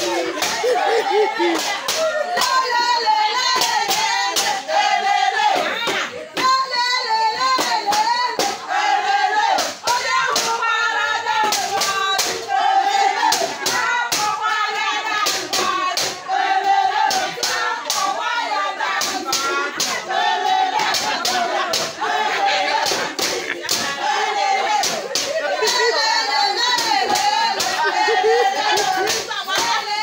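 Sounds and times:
hand clapping: 0.0 - 2.6, 22.8 - 24.0, 26.6 - 29.8
women singing together: 0.0 - 30.0.

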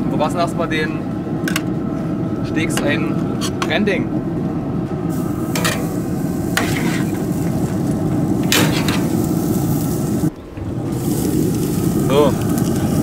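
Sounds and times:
pork chops sizzling on a grill: 5.1 - 13.0.

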